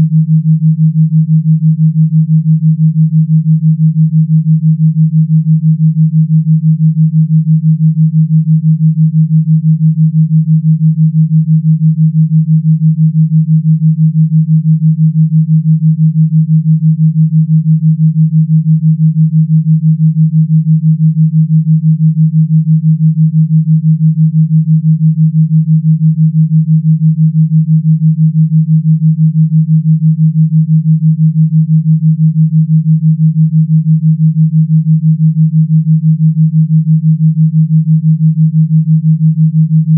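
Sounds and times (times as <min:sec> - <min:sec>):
pulsing low electronic tone: 0:29.0 - 0:39.9.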